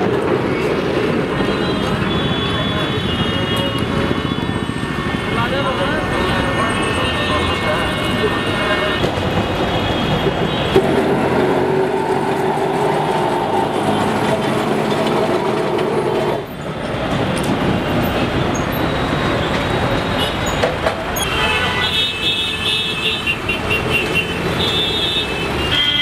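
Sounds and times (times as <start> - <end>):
tram running on track: 0.0 - 22.2.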